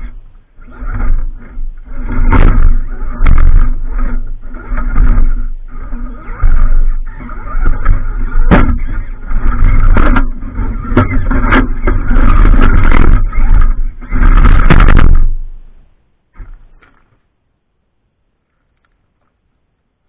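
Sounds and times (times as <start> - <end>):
electric motor whining: 0.0 - 15.7
toy truck scraping against stone: 0.0 - 17.3.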